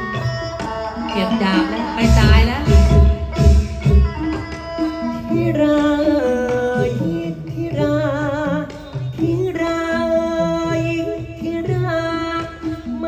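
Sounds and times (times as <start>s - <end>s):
heavy drum strokes: 0.0s - 9.1s
theatre singing: 0.0s - 10.8s
instrumental accompaniment: 0.0s - 13.0s.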